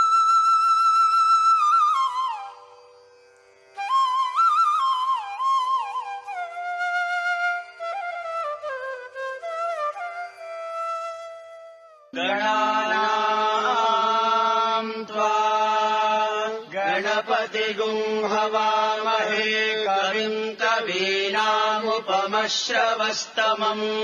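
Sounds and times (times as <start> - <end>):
person chanting long notes: 12.1 - 17.1.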